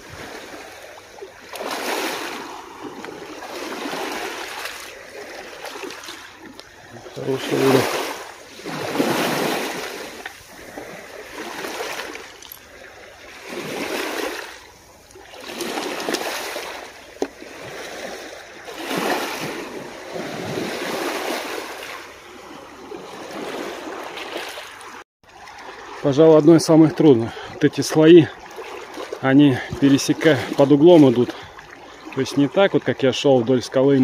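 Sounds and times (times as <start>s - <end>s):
sea waves washing against rocks: 0.0s - 25.0s.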